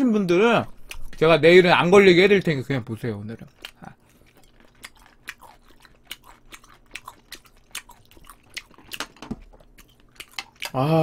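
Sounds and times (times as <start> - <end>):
mouth chewing clicks and smacks: 0.7 - 1.2, 3.3 - 10.8.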